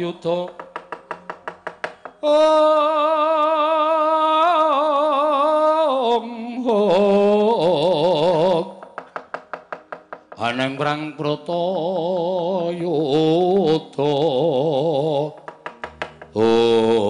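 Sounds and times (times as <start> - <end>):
rapid wooden knocks: 0.4 - 2.2, 8.4 - 11.2, 15.1 - 16.6
person singing long held notes: 2.2 - 8.8, 10.4 - 15.5, 16.3 - 17.0.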